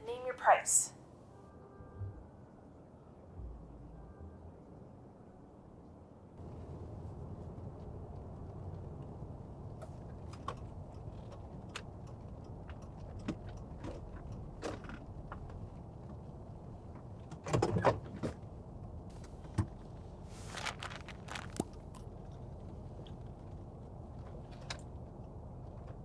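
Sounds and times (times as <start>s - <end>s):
car cabin low rumble: 4.7s - 26.0s
clicks and rustles in seat: 9.8s - 16.2s, 20.4s - 23.6s.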